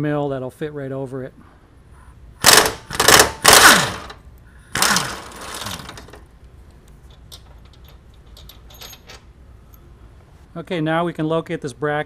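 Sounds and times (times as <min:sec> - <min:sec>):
impact wrench hammering: 0:02.4 - 0:04.2, 0:04.8 - 0:06.1.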